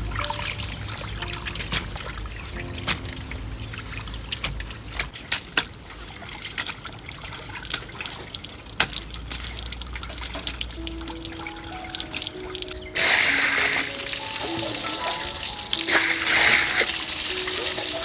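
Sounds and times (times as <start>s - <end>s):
low steady hum: 0.0s - 5.2s
water trickling: 0.0s - 18.0s.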